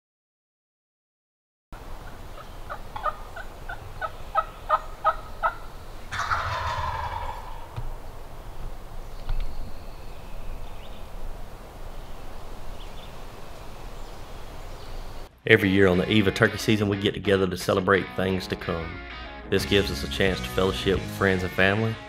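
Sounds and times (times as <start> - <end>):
turkey gobbling: 2.0 - 8.3.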